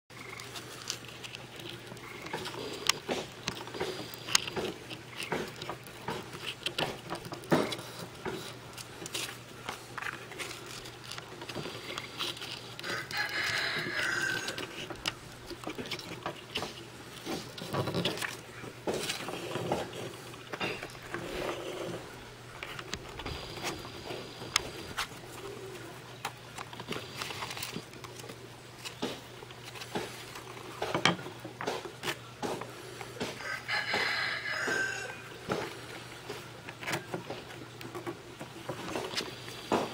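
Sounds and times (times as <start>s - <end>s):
sandpaper crinkling and scraping: 0.1s - 30.6s.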